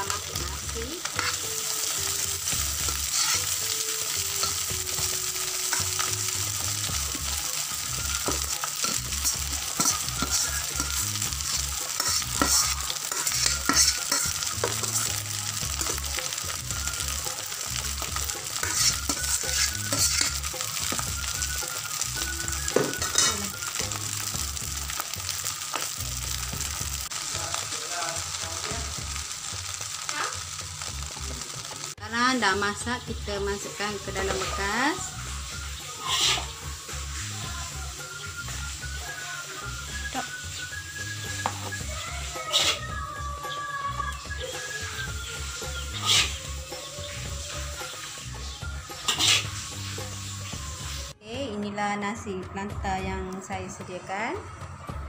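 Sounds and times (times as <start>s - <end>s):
rice sizzling in a wok: 0.0s - 51.2s
metal spatula scraping pan: 1.1s - 1.9s, 2.8s - 4.7s, 8.3s - 11.0s, 11.9s - 15.1s, 18.5s - 21.0s, 22.7s - 23.5s, 36.0s - 36.5s, 46.0s - 46.4s, 49.0s - 49.7s.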